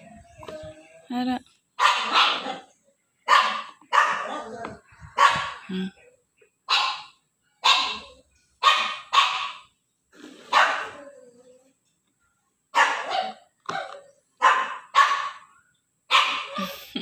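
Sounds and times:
dog barking: 1.8 - 5.7, 6.7 - 9.7, 10.5 - 11.0, 12.7 - 15.5, 16.1 - 16.6.

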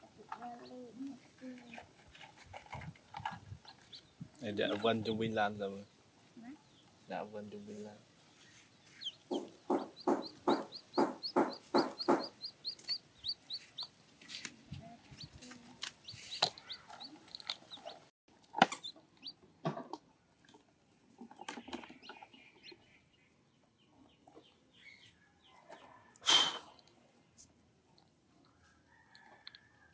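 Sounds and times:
chickens clucking: 0.0 - 5.2, 7.5 - 19.4
chicks cheeping: 3.6 - 4.9, 8.3 - 14.0, 16.0 - 18.1, 18.8 - 19.4, 21.3 - 25.9.

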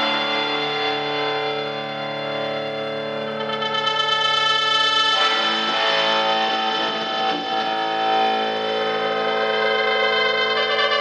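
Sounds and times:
distorted electric guitar drone: 0.0 - 11.0.

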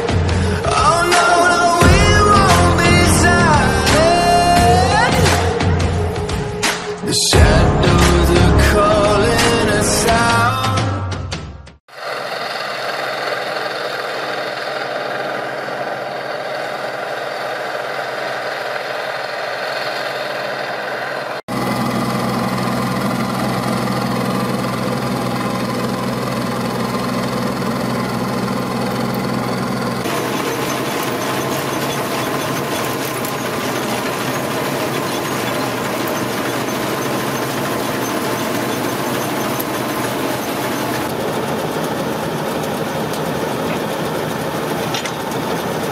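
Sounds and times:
diesel engine running: 0.0 - 10.9, 11.9 - 45.9
deep steady hum: 1.8 - 6.7, 21.5 - 44.3
threshing machinery turning: 11.9 - 45.9.

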